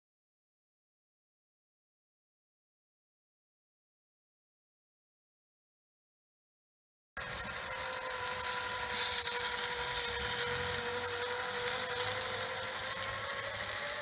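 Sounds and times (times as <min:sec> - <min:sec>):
grill fire hissing and sizzling: 0:07.2 - 0:14.0
rotisserie motor whining: 0:07.2 - 0:14.0.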